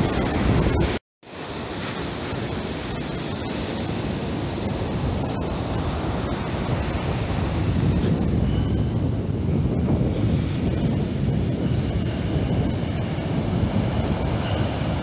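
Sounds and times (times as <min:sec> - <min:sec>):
rough surf rushing: 0:00.0 - 0:15.0
wind buffeting microphone: 0:00.0 - 0:15.0.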